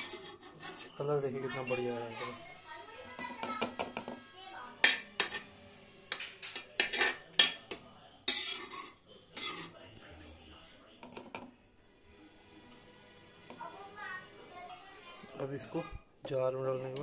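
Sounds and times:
metal spoon clinking and scraping: 0:00.0 - 0:01.1, 0:04.8 - 0:05.5, 0:06.1 - 0:09.8.

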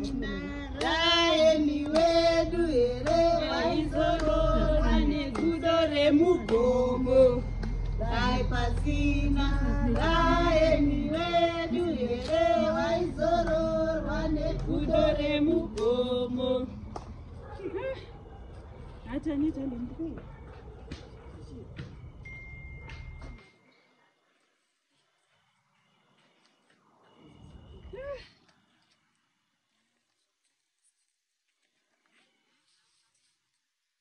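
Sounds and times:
women singing in chorus: 0:00.0 - 0:17.0.

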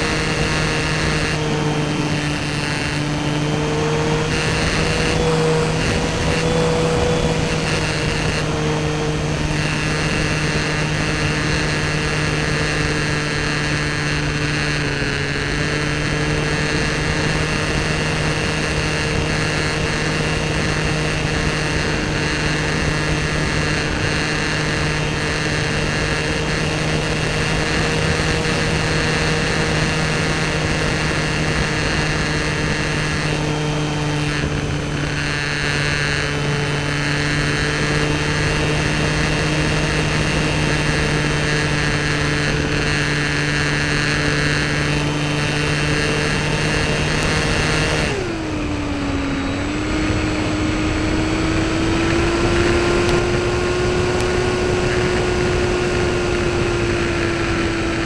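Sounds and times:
electric motor and propeller whine: 0:00.0 - 0:58.0.

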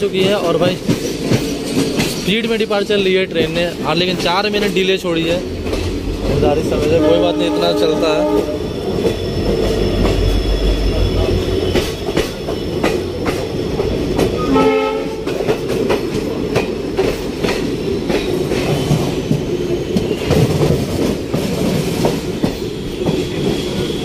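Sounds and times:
wheels clicking over rail joints: 0:00.0 - 0:07.0
train rumble: 0:00.0 - 0:24.0
train horn blast: 0:06.6 - 0:08.8, 0:14.4 - 0:15.4.

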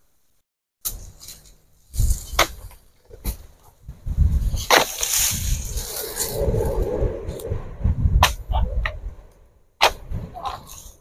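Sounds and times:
dry palm fronds rustling: 0:00.8 - 0:07.4.

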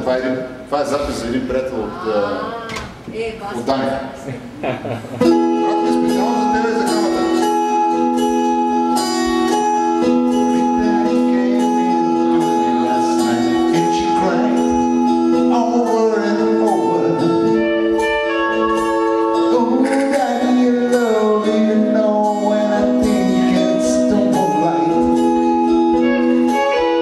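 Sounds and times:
electronic keyboard chords: 0:05.2 - 0:27.0
man singing into microphone: 0:10.0 - 0:18.0, 0:19.3 - 0:27.0.

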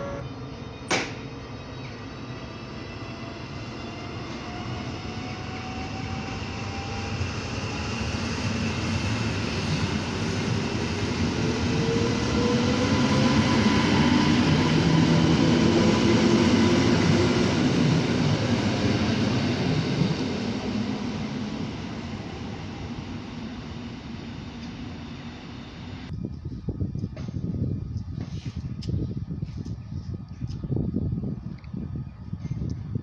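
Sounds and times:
train wheels rumbling on rails: 0:03.8 - 0:25.4.

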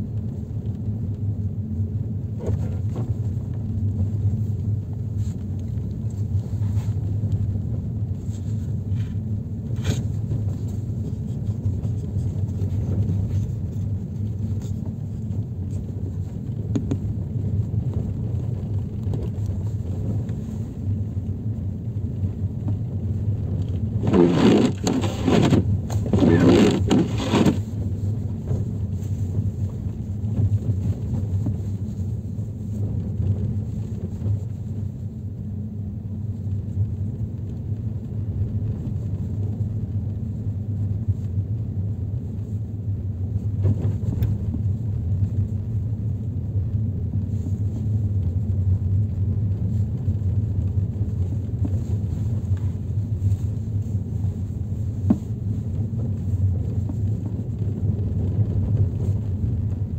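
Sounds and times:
car interior road rumble: 0:00.0 - 0:59.9
scraping rushes: 0:24.0 - 0:27.7.

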